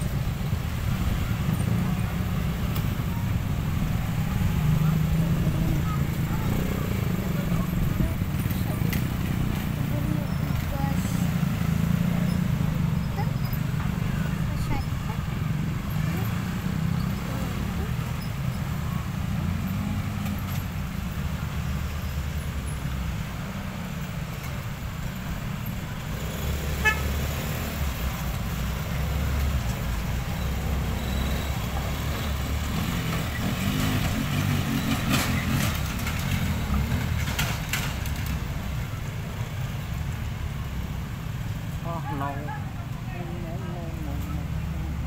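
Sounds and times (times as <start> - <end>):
vehicle engines passing slowly: 0.0 - 45.0
horn toots: 26.7 - 27.3.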